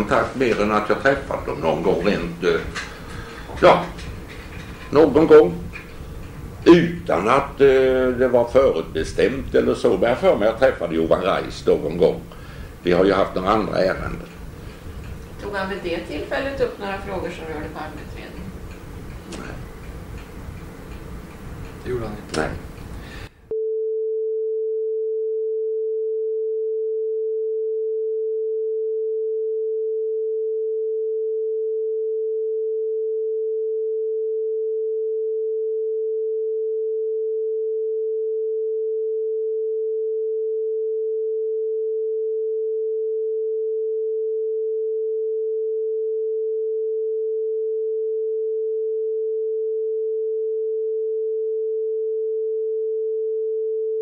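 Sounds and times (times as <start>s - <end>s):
steady sine tone: 23.0s - 54.0s.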